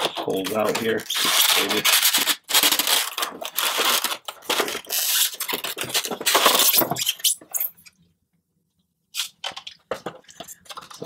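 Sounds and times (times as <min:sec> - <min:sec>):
styrofoam scraping on plastic: 0:00.0 - 0:07.8.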